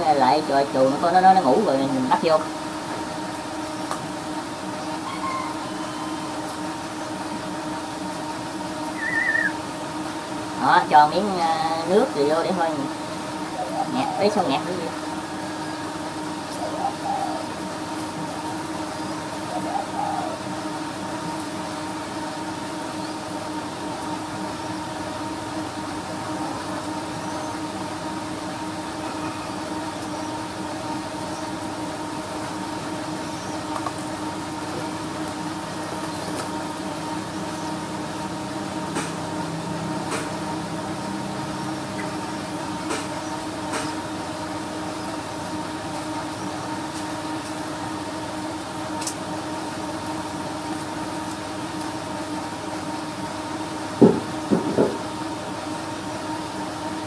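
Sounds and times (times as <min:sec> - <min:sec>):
steady machine hum: 0:00.0 - 0:57.0.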